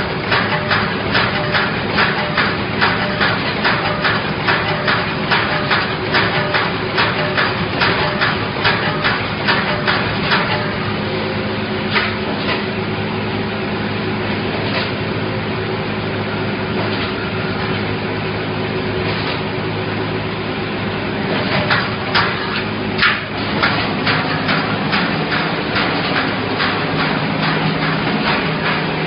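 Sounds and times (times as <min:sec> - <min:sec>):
welding machine hum: 0:00.0 - 0:29.0
sharp metallic clanks: 0:21.5 - 0:29.0.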